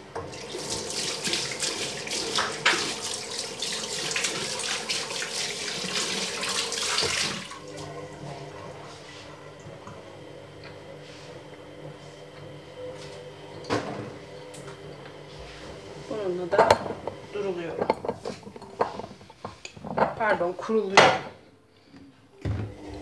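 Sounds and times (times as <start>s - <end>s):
tap water running into basin: 0.0s - 8.8s, 16.6s - 20.1s.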